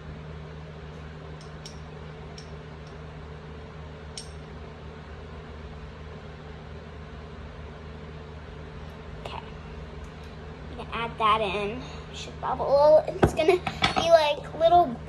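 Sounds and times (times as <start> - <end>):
kitchen appliance humming: 0.0 - 15.0
kitchenware clinking: 13.2 - 14.1.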